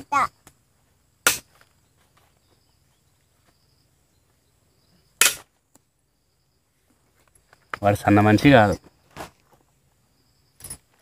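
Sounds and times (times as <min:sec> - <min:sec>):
sharp cracks: 0:01.2 - 0:01.7, 0:05.2 - 0:05.9.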